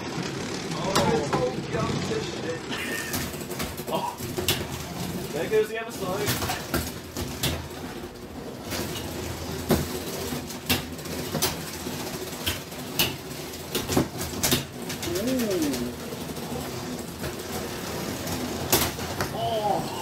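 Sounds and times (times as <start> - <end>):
plastic robots knocking and clattering: 0.0 - 19.4
short vocal sound: 15.1 - 16.0.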